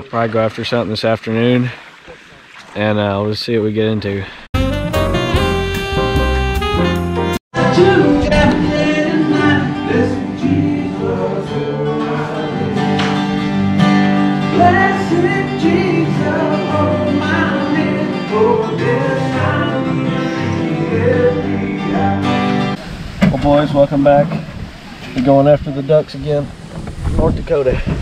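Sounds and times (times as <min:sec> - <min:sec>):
acoustic guitar playing: 0:04.6 - 0:24.7
person singing: 0:07.6 - 0:13.4, 0:14.5 - 0:22.8.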